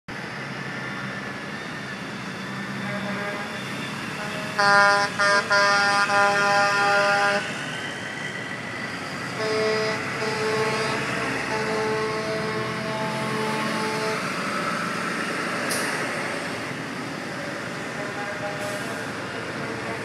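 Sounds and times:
diesel truck engines running: 0.1s - 20.0s
truck air horn blasts: 2.8s - 3.6s, 4.2s - 7.5s, 9.4s - 14.4s.

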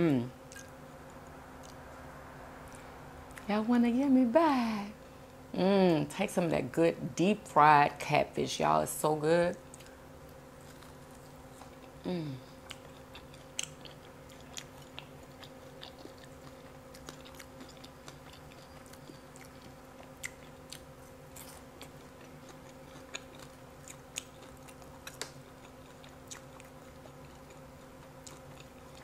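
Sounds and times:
low hum: 0.0s - 29.0s
person chewing: 0.4s - 2.0s, 9.7s - 29.0s.

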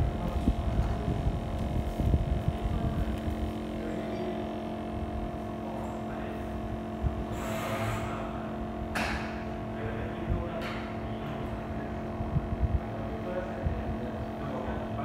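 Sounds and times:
steady tonal hum: 0.0s - 15.0s.

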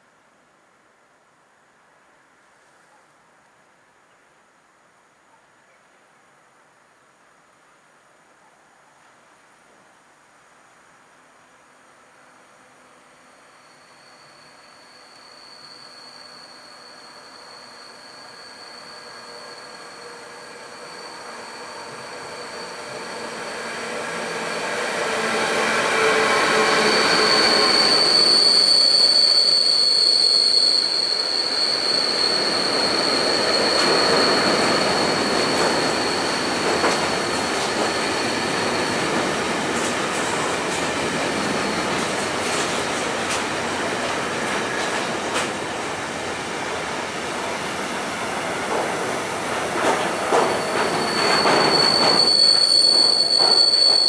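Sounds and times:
freight train rolling past: 12.1s - 54.0s
high wheel squeal: 13.1s - 42.8s, 47.1s - 54.0s.

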